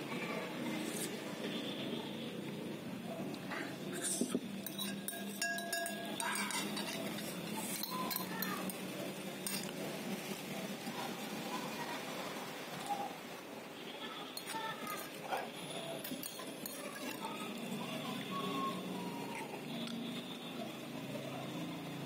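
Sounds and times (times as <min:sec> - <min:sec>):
cutlery scraping ceramic bowl: 0:04.1 - 0:08.5, 0:16.0 - 0:17.2
bowl ringing: 0:04.7 - 0:06.9.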